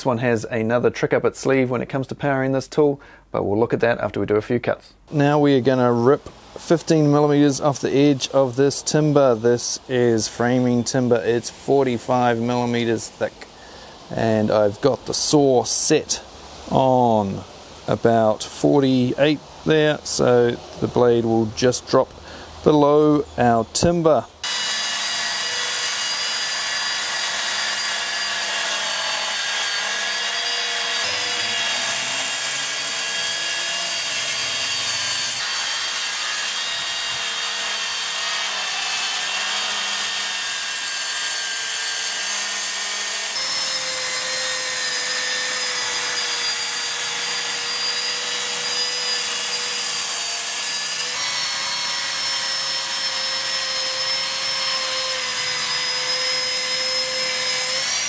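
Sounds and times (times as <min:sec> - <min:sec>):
track saw cutting timber: 0:24.4 - 0:58.0.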